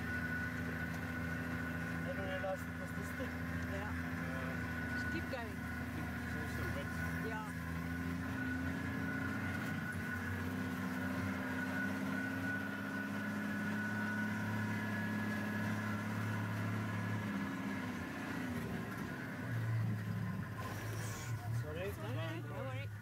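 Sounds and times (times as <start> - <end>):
vehicle engine at low speed: 0.0 - 23.0.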